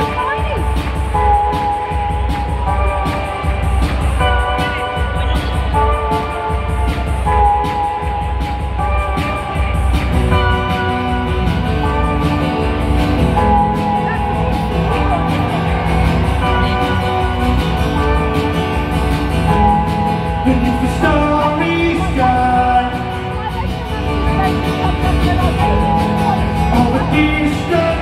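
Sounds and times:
rock band playing: 0:00.0 - 0:28.0
person singing: 0:19.5 - 0:28.0.

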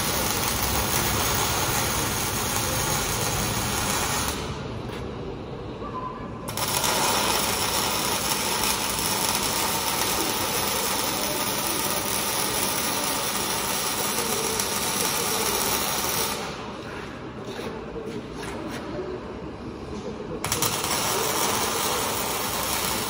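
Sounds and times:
welding arc sizzling: 0:00.0 - 0:04.8, 0:06.5 - 0:17.6, 0:20.4 - 0:23.0.

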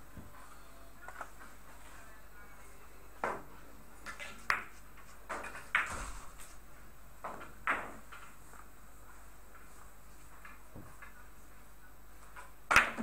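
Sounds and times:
billiard balls clicking: 0:07.2 - 0:08.7.

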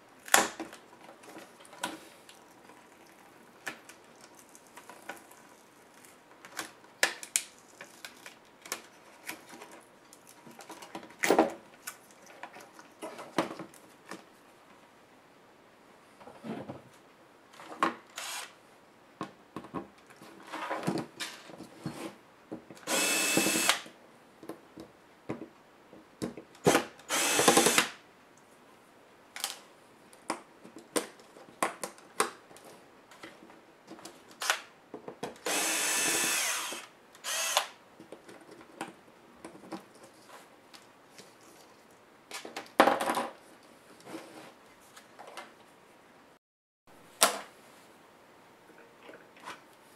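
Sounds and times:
electric screwdriver running: 0:18.2 - 0:18.5, 0:22.9 - 0:23.8, 0:27.1 - 0:27.9, 0:35.5 - 0:37.7.

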